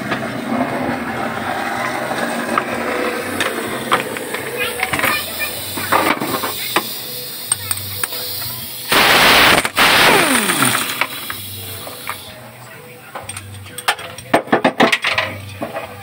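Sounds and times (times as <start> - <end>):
rushing noise with falling whine: 8.8 - 12.0.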